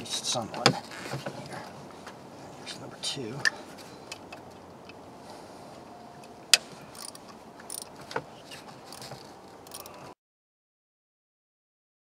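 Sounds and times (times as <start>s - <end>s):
hand tools clicking on bolts: 6.5s - 8.0s, 8.9s - 10.0s.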